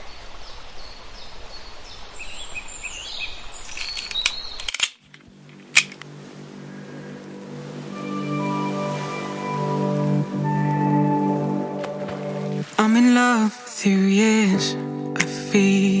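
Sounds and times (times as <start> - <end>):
small birds chirping: 0.0 - 4.8
sharp clicks: 3.7 - 6.0.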